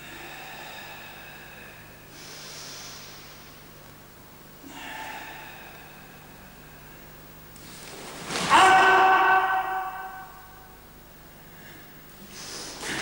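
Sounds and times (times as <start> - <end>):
forceful hissing breaths: 0.0 - 3.7, 4.6 - 8.0, 11.5 - 13.0.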